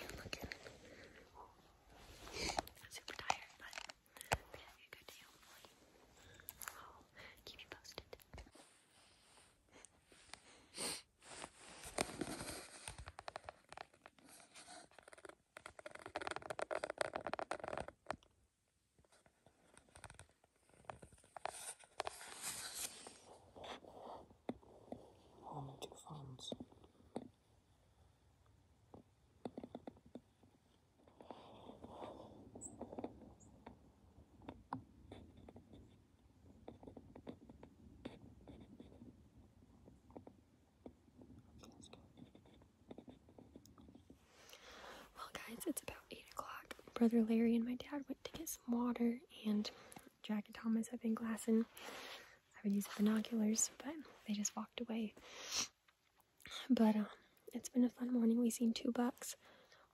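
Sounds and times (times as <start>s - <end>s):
faint irregular clicks: 0.0s - 8.6s, 11.8s - 18.4s
soft scratchy rustling: 0.0s - 18.2s, 19.0s - 24.4s, 41.2s - 55.4s
rustling and scraping handling noise: 11.2s - 18.2s, 19.0s - 23.5s.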